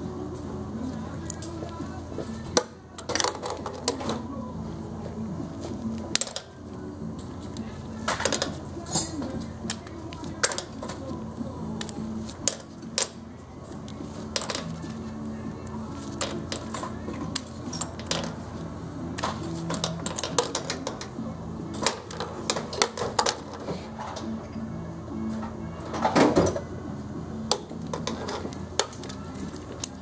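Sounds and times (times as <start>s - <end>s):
background music: 0.0s - 30.0s.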